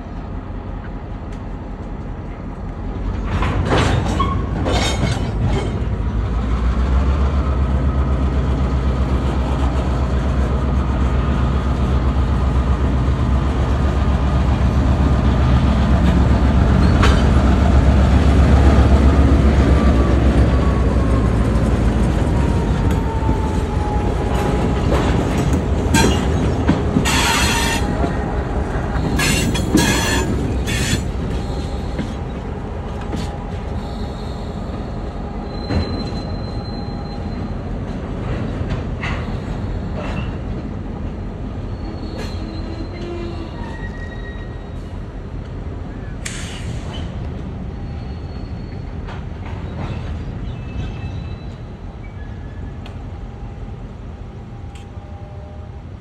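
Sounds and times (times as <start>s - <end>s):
diesel locomotive engine rumbling: 0.0s - 56.0s
wheels clicking and clanking on rails: 0.8s - 53.2s
wheel squeal: 27.1s - 28.0s, 28.9s - 32.0s, 35.4s - 37.6s, 41.6s - 45.0s, 46.0s - 52.8s.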